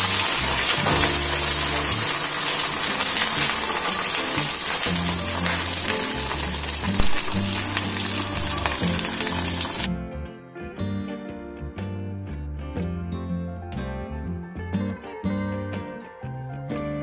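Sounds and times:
egg sizzling in oil: 0:00.0 - 0:09.9
background music with bass line: 0:04.4 - 0:17.0.

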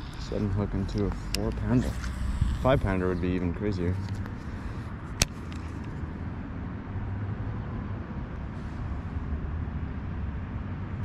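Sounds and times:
wind buffeting microphone: 0:00.0 - 0:03.7
sharp click: 0:05.2 - 0:05.9.

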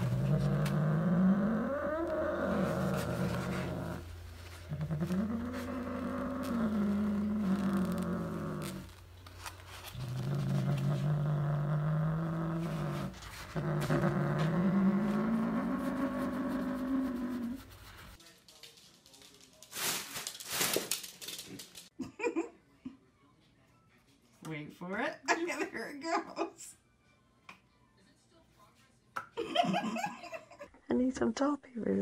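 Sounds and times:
cat growling: 0:00.0 - 0:17.8.

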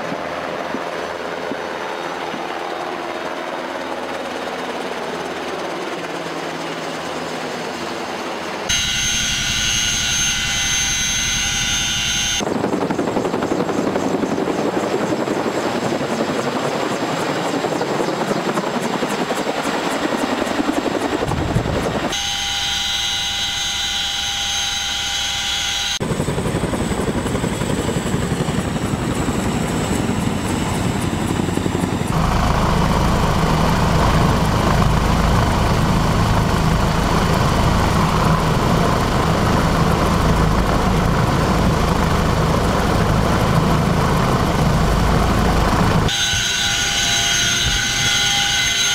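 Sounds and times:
low rumble inside helicopter cockpit: 0:00.0 - 0:46.1
helicopter rotors beating: 0:00.0 - 0:48.9
high turbine whine: 0:08.1 - 0:15.2, 0:17.7 - 0:48.9.

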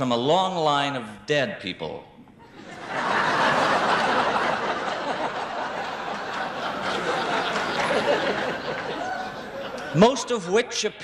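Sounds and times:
large audience laughing: 0:02.4 - 0:10.2.

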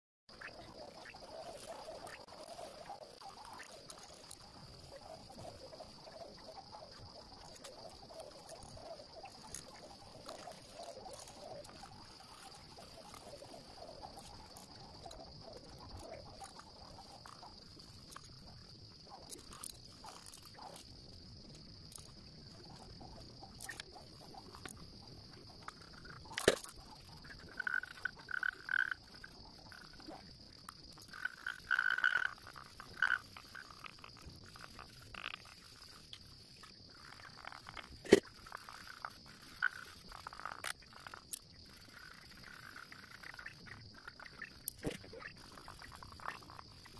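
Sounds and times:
warbling animal calls: 0:22.0 - 0:46.9.

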